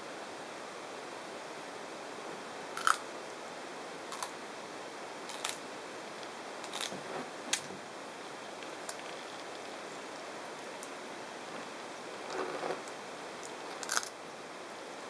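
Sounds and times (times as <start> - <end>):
steady hiss: 0.0 - 15.0
tortoise crunching cactus: 5.3 - 5.6, 6.6 - 7.0, 13.7 - 14.2.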